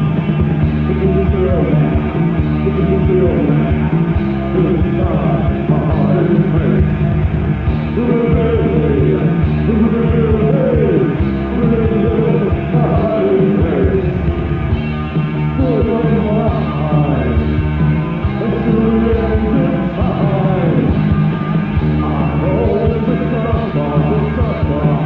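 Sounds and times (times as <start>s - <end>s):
person singing: 0.0s - 7.3s, 7.9s - 25.0s
drums: 0.0s - 25.0s
goth rock band: 0.0s - 25.0s.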